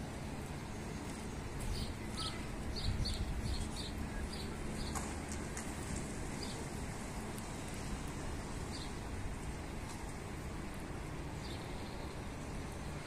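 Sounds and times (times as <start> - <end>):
steady outdoor background hiss: 0.0 - 13.0
bird chirping: 1.6 - 5.0.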